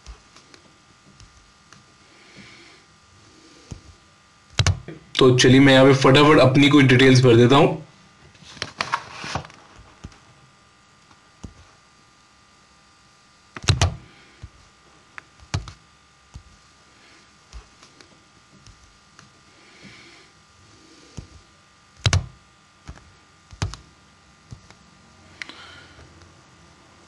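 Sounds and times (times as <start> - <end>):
keyboard clicks: 13.6 - 14.0, 22.0 - 22.3, 22.9 - 23.8.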